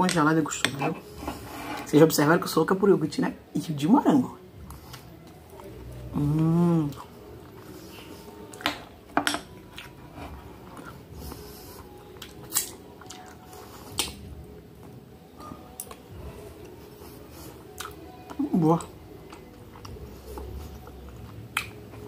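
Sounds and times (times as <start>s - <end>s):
spoon scraping glass bowl: 0.6s - 2.0s
chewing: 9.6s - 15.0s, 15.6s - 22.0s.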